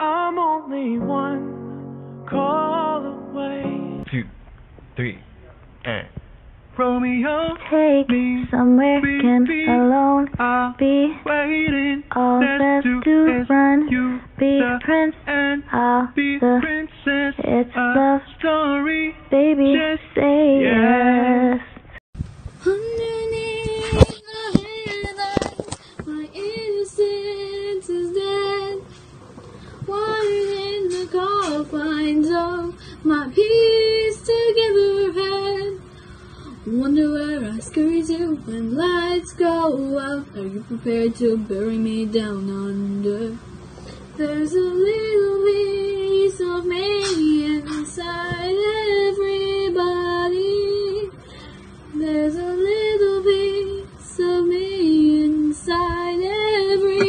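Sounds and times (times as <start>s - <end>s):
girl singing: 0.0s - 4.0s, 7.2s - 21.6s, 22.6s - 43.4s, 44.1s - 51.2s, 51.9s - 57.0s.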